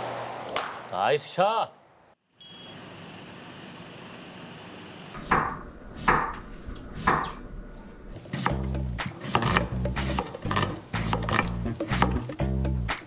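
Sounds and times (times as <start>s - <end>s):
short high chime: 2.4s - 2.8s
background music: 8.2s - 13.0s
knife on wooden cutting board: 9.2s - 12.3s.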